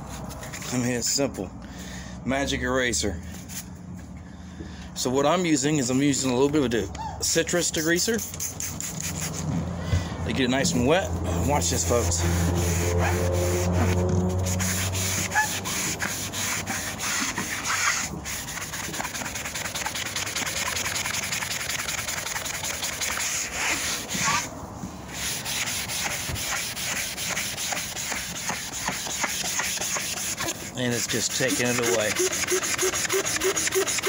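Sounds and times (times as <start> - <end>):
foam scrubbing upholstery: 7.4 - 9.5, 11.3 - 24.5, 25.1 - 34.0.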